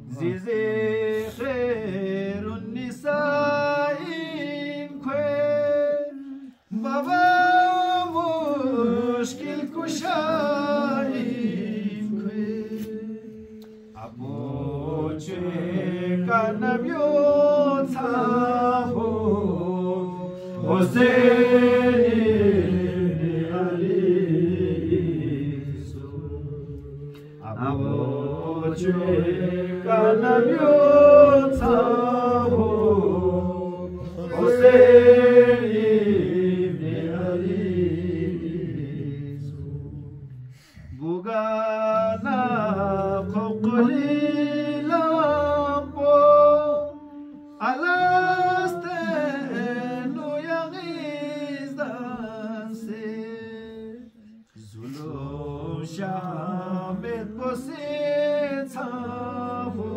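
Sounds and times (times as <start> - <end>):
person chanting unaccompanied: 0.0 - 59.9.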